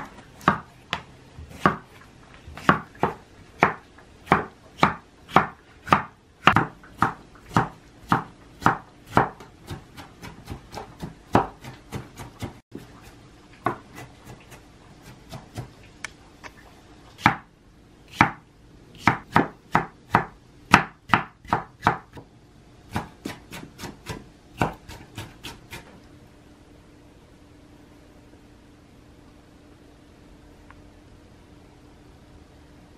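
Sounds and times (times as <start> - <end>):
knife chopping on wooden board: 0.0 - 0.7, 1.4 - 1.9, 2.5 - 12.9, 13.6 - 15.7, 18.1 - 18.4, 19.0 - 22.3, 22.9 - 25.9.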